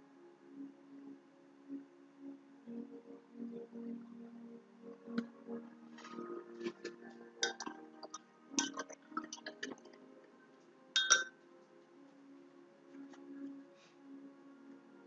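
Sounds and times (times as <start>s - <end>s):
small hard objects clinking: 11.0s - 11.3s.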